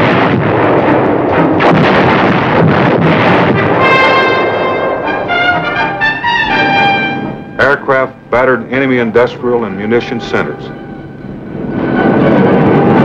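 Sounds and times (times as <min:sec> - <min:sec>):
artillery fire and explosions: 0:00.0 - 0:13.0
brass music: 0:03.2 - 0:13.0.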